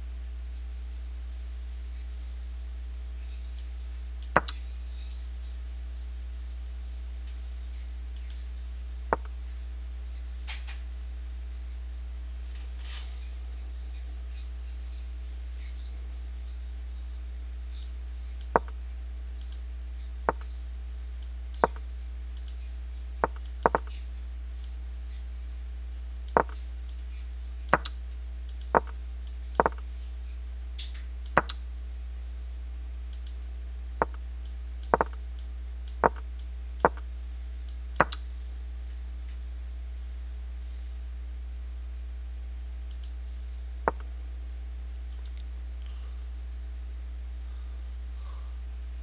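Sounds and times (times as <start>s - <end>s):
steady low hum: 0.0s - 49.0s
computer mouse button clicking: 4.3s - 4.6s, 23.2s - 23.9s, 26.4s - 26.6s, 27.7s - 27.9s, 29.6s - 29.8s, 31.3s - 31.6s, 34.8s - 35.2s, 38.0s - 38.2s.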